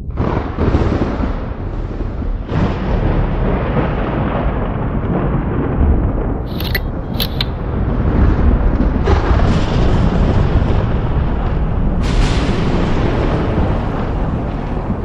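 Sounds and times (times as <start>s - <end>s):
thunder crash: 0.1s - 15.0s
thunder rumbling: 0.1s - 15.0s
short sharp high clicks: 6.5s - 7.6s.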